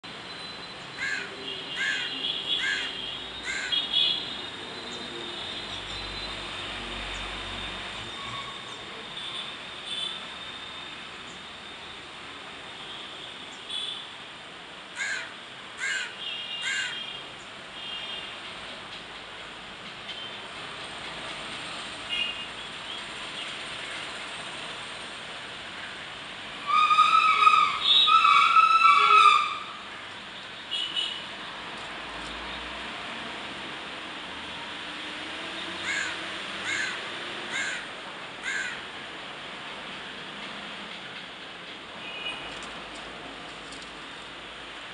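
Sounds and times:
crow cawing: 1.0s - 3.8s, 15.0s - 17.0s, 35.8s - 38.8s.

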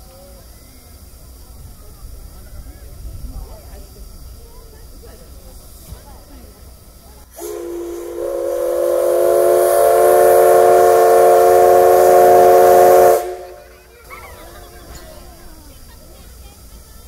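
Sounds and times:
steam locomotive whistle blast: 7.3s - 13.7s.

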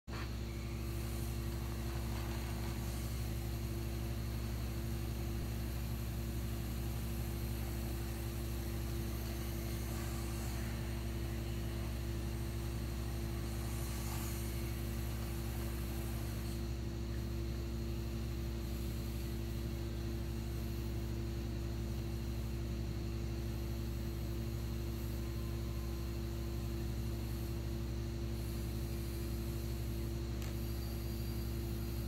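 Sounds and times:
low engine-like hum: 0.0s - 32.0s
drive motors whirring: 0.1s - 17.6s, 28.4s - 32.0s.

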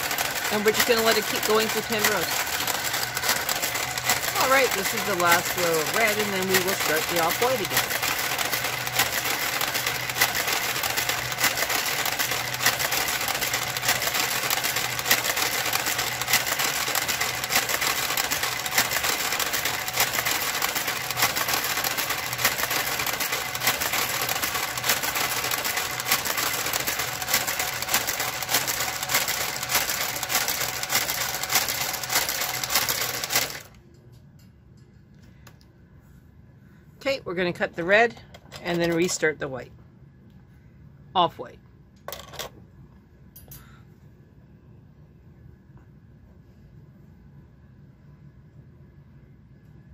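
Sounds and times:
knitting carriage clicking: 0.0s - 33.8s
knitting machine motor hum: 0.0s - 33.9s.

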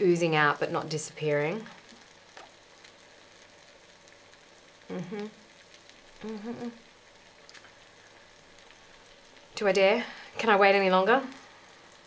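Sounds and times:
toastie sizzling in a grill: 0.0s - 12.0s
woman humming: 4.9s - 5.5s, 6.2s - 6.9s.

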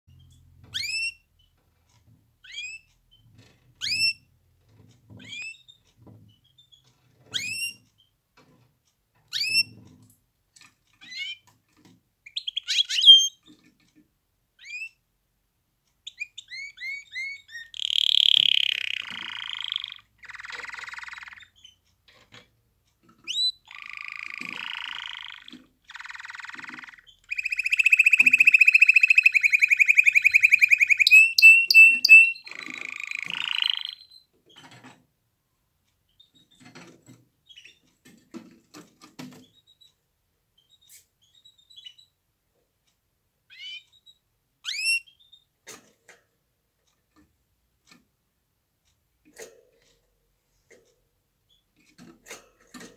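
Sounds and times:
canary singing: 0.1s - 1.6s, 2.4s - 4.3s, 5.2s - 8.1s, 9.3s - 9.8s, 11.0s - 13.7s, 14.6s - 15.0s, 16.0s - 21.8s, 23.0s - 34.7s, 40.6s - 42.2s, 43.5s - 45.5s.

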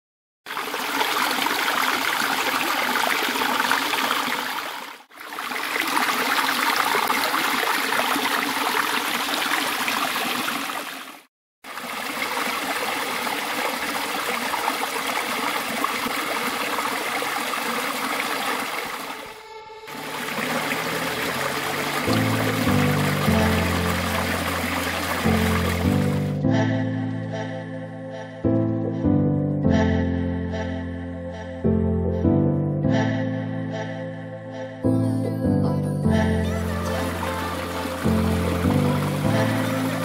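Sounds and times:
stream rushing over rocks: 0.5s - 19.3s, 19.9s - 26.3s, 37.0s - 40.0s
music: 21.1s - 40.0s.

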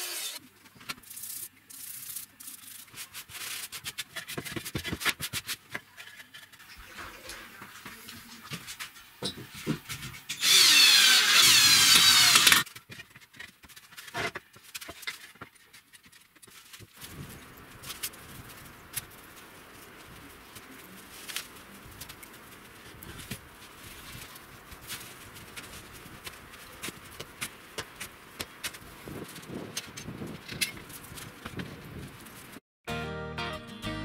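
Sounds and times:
power tool whining: 0.0s - 0.4s, 10.3s - 12.6s.

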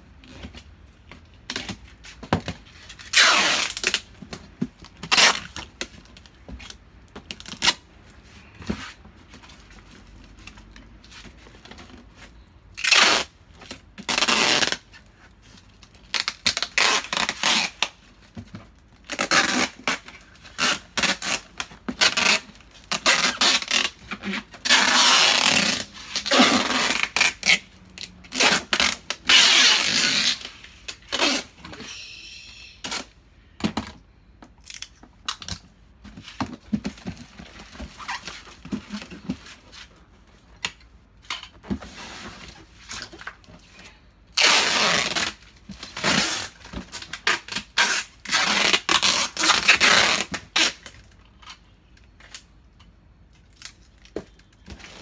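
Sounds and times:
packing tape ripping: 3.0s - 4.1s, 4.9s - 5.9s, 12.8s - 13.4s, 14.0s - 14.9s, 15.8s - 18.0s, 19.0s - 31.5s, 44.3s - 51.1s.

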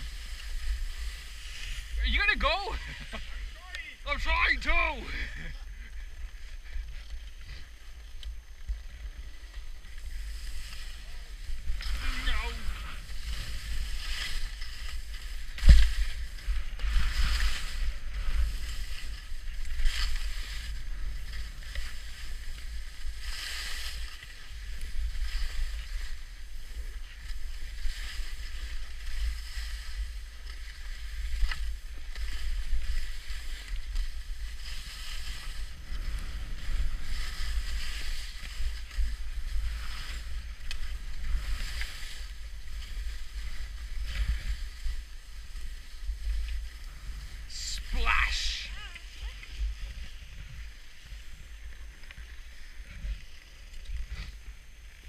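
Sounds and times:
skis swishing on snow: 0.0s - 5.4s, 8.6s - 55.0s
wind rumble on microphone: 5.2s - 47.5s
skis thumping: 9.4s - 20.6s.

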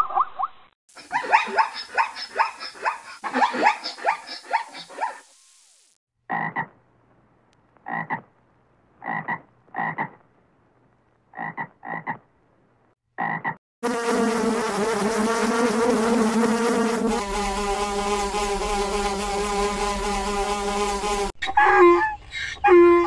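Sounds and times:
frog croaking: 6.3s - 6.7s, 7.8s - 8.3s, 9.0s - 10.2s, 11.3s - 12.2s.

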